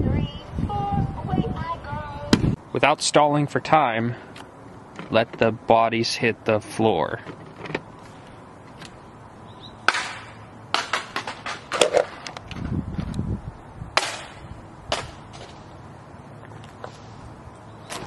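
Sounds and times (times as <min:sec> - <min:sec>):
sharp knocks and clatters: 0:09.9 - 0:12.4.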